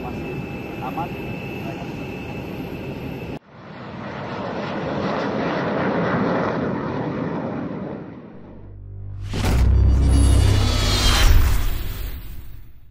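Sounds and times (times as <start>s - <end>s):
aircraft noise with high whine: 0.0s - 8.8s
jets passing low overhead: 0.0s - 9.2s.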